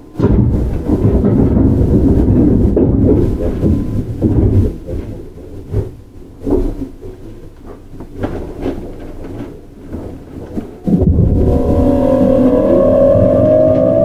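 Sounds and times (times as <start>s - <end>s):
train running rumble: 0.0s - 6.5s, 10.7s - 14.0s
train motor whine rising: 10.9s - 14.0s.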